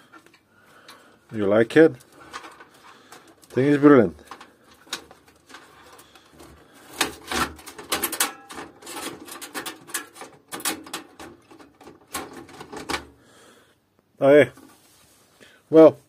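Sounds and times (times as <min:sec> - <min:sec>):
clicks rubs and scrapes of handling: 0:14.6 - 0:15.3.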